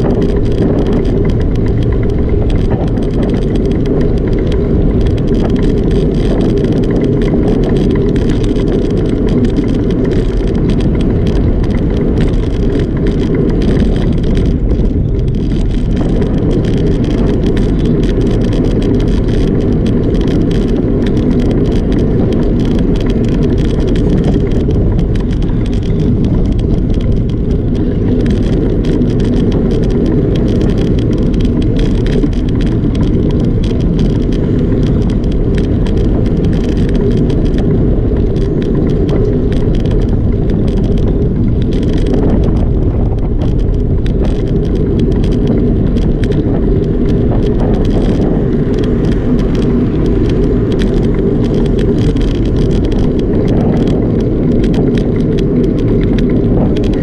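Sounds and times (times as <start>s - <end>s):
bike rattling: 0.0s - 57.0s
tyre rumble on pavement: 0.0s - 57.0s
wind on microphone: 0.0s - 57.0s.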